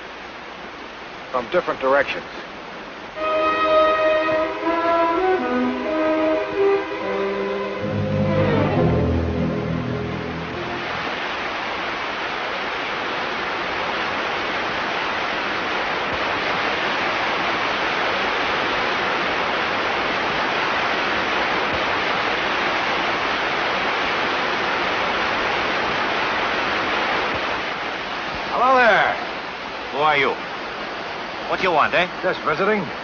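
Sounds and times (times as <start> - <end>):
river water rushing over falls: 8.6 - 33.0.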